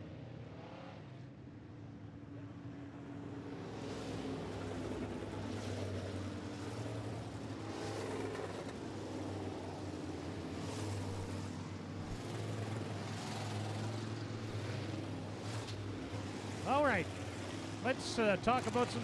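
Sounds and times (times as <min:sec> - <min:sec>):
race car engines droning: 0:00.0 - 0:19.0.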